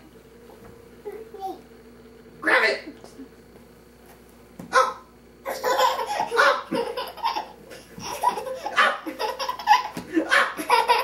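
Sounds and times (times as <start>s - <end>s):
high-pitched giggling: 5.5s - 11.0s.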